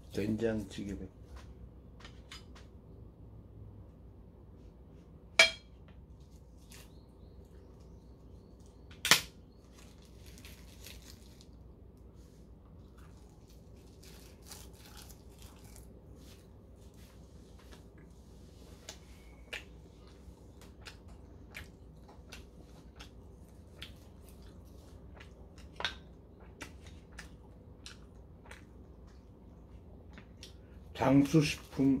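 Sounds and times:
seaweed crackling while eaten: 9.6s - 11.6s, 12.7s - 16.5s.

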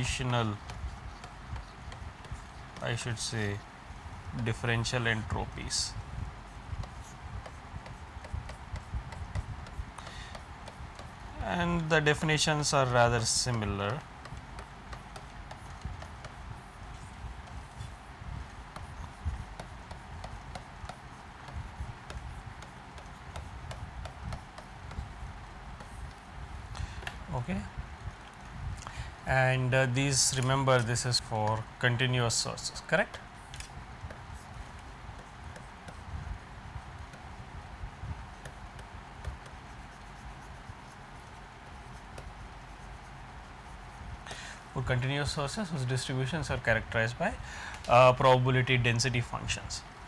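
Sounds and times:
steady hiss and rumble: 0.0s - 50.0s
stylus tapping on screen: 6.6s - 11.2s, 13.4s - 27.3s, 38.3s - 42.4s.

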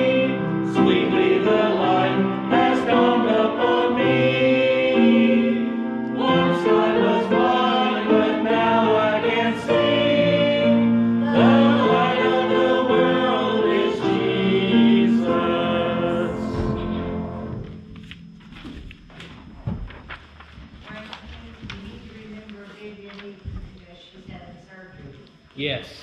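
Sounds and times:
congregation singing a hymn: 0.0s - 18.2s.

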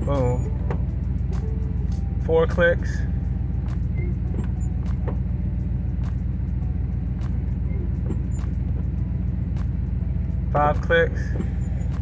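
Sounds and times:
pickup engine idling: 0.0s - 12.0s
windshield wiper motor sweep: 3.6s - 5.4s, 7.2s - 9.9s, 10.5s - 12.0s.

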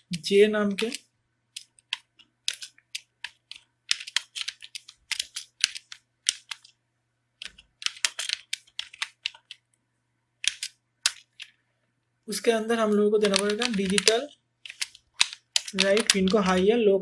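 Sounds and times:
keyboard typing clicks: 0.8s - 6.7s, 7.4s - 9.6s, 10.4s - 11.5s, 13.2s - 16.6s.

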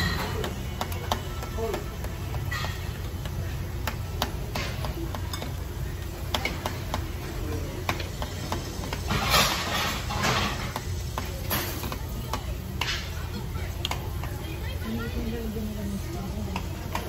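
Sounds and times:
chopsticks clicking against dishes: 13.8s - 14.4s.

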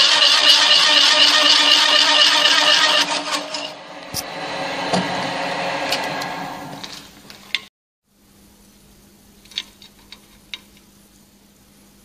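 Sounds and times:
drill press running down: 0.0s - 7.6s.

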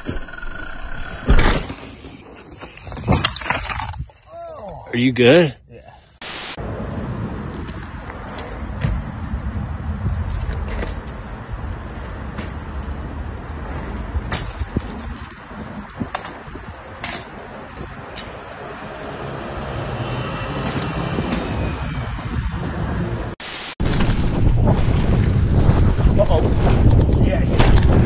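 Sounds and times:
city traffic: 6.2s - 23.8s.

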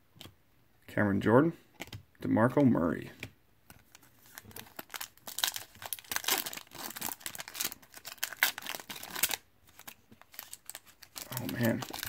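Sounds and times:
foil wrapper crinkling and tearing: 4.0s - 12.0s.

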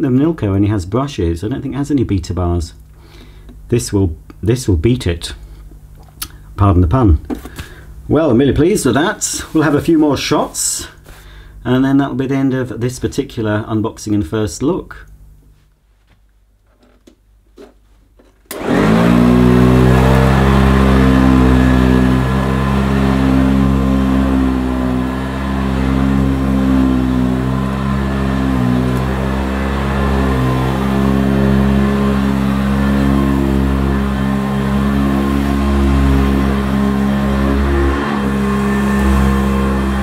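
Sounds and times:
vacuum cleaner running on carpet: 18.5s - 40.0s.

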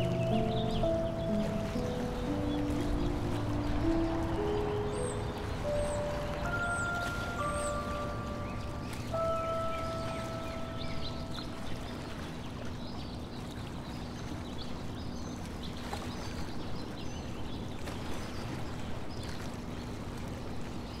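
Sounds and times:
held notes of music: 0.0s - 12.2s
small birds chirping: 0.0s - 15.8s.

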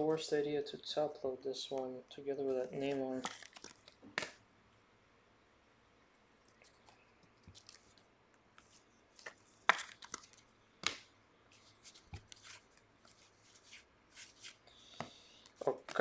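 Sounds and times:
cards rustling and sliding: 2.6s - 4.4s, 6.5s - 16.0s.

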